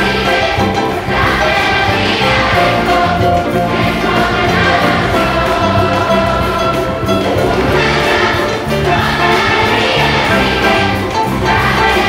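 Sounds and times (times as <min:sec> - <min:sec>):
children's choir singing: 0:00.0 - 0:12.0
instrumental bass line: 0:00.0 - 0:12.0.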